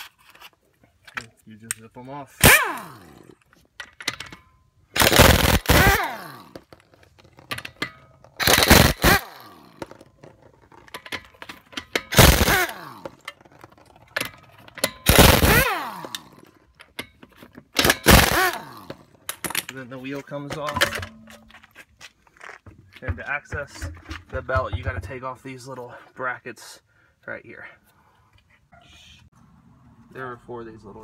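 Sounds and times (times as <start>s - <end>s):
impact wrench bursts: 2.4s - 3.4s, 4.0s - 6.8s, 7.4s - 9.9s, 11.6s - 13.4s, 14.2s - 17.0s, 17.7s - 19.5s.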